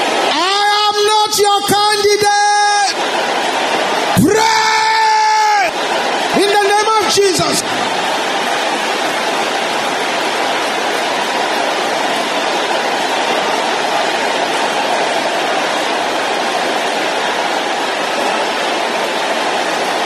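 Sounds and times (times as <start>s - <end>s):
congregation praying aloud: 0.0s - 20.0s.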